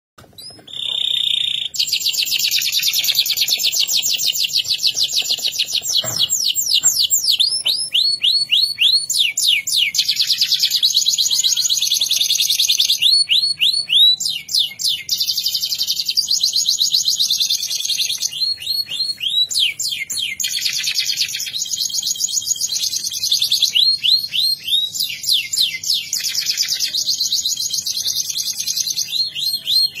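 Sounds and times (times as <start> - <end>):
canary singing: 0.2 - 30.0.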